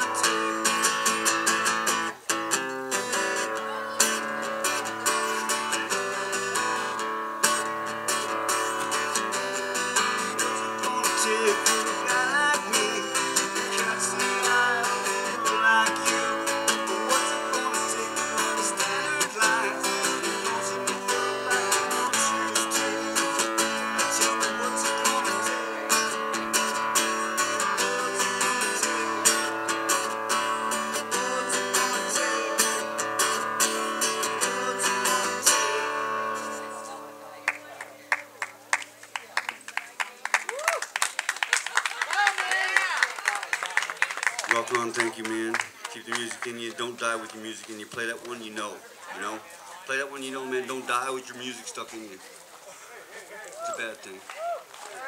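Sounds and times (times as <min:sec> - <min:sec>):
acoustic guitar strumming: 0:00.0 - 0:38.7.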